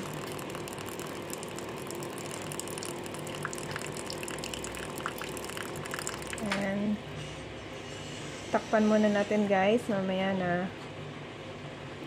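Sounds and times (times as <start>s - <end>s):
water pouring into paper cup: 0.0s - 6.6s.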